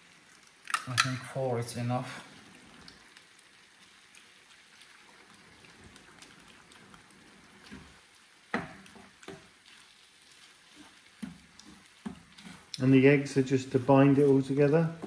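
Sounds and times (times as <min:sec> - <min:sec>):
food sizzling in a pan: 0:00.0 - 0:15.0
wooden spatula knocking pan: 0:07.6 - 0:09.5, 0:10.8 - 0:12.8.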